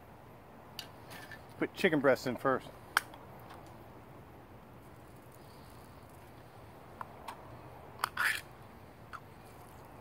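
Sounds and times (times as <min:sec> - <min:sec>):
scraping in a can: 0:08.0 - 0:08.5.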